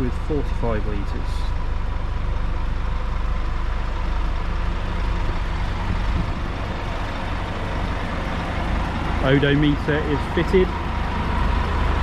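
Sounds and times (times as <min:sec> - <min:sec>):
bus diesel engine idling: 0:00.0 - 0:12.0.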